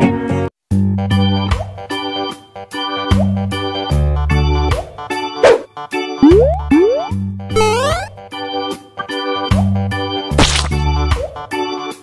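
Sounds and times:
plucked notes over bass line: 0:06.2 - 0:08.2.

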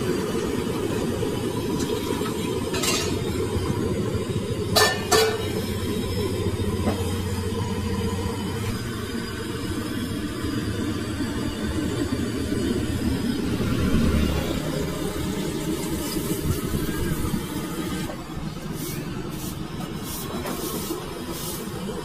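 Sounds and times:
low mechanical rumble: 0:00.0 - 0:22.0
metal utensils clinking: 0:02.7 - 0:03.3, 0:04.7 - 0:05.6.

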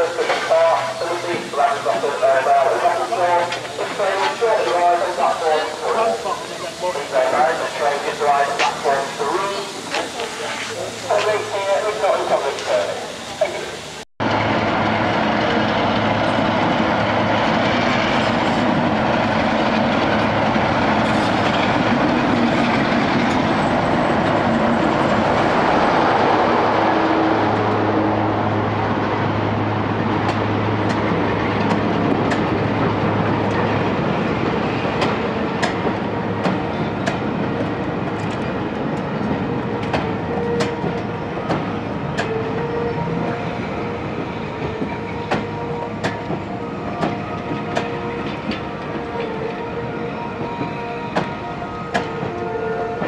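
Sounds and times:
diesel locomotive engine running: 0:00.0 - 0:53.0
train wheels clicking over rail joints: 0:03.3 - 0:05.0, 0:30.2 - 0:42.4, 0:44.2 - 0:49.6, 0:50.4 - 0:53.0.

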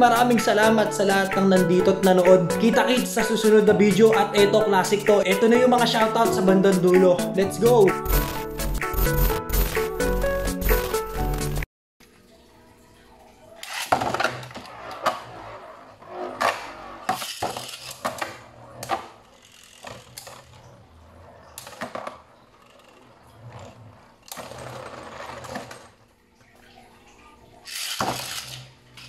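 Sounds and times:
music: 0:00.0 - 0:11.7.

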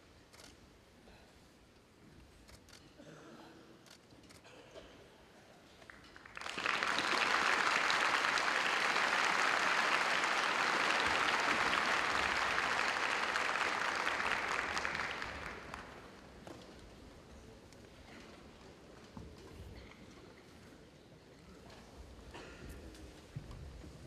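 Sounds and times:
audience applauding: 0:05.9 - 0:16.2.

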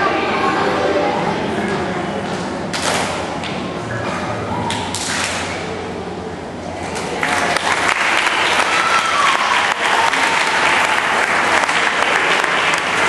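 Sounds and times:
voices: 0:00.0 - 0:13.0
audience applauding: 0:07.0 - 0:13.0.

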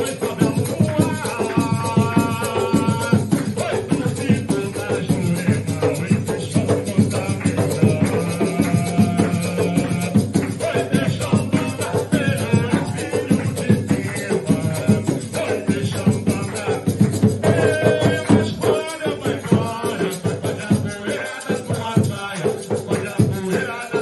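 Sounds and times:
percussion beat: 0:00.0 - 0:24.0
sacred chant singing: 0:00.0 - 0:24.0
shaker rattling: 0:00.0 - 0:24.0.

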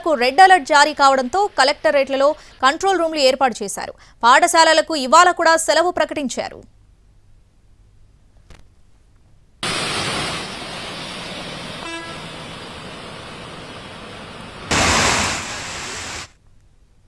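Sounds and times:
rain and road traffic: 0:09.6 - 0:16.4
vehicle horn toot: 0:11.8 - 0:12.3.

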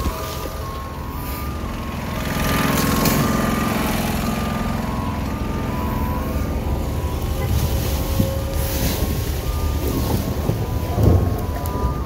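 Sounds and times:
reversing alarm beeping: 0:00.0 - 0:12.0
vehicle engine running: 0:00.0 - 0:12.0
wind on microphone: 0:07.4 - 0:12.0.

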